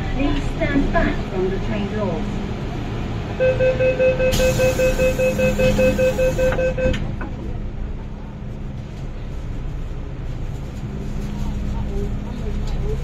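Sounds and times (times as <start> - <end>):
train rumble with low hum: 0.0 - 13.0
door-closing warning beeps: 3.4 - 7.1
train doors shutting with knock: 4.3 - 7.4.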